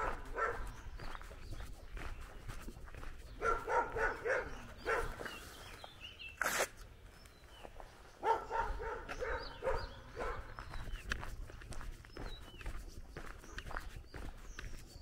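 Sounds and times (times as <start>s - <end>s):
dog barking rapidly: 0.0s - 1.0s, 3.3s - 5.2s, 8.2s - 10.7s.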